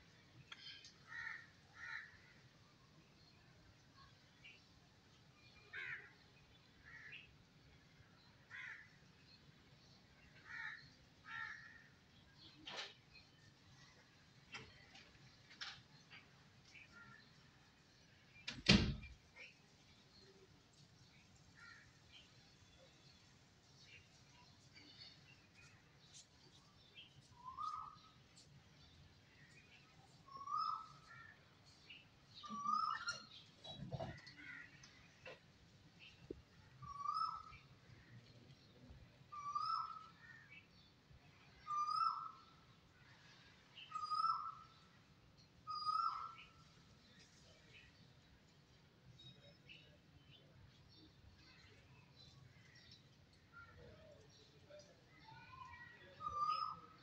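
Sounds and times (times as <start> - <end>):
crows cawing faintly: 0.7 - 2.5, 5.7 - 6.2, 6.8 - 7.3, 8.5 - 9.0, 10.3 - 12.0, 21.6 - 22.0, 33.9 - 35.4
faint bird chirps: 10.3 - 35.4, 36.0 - 57.0.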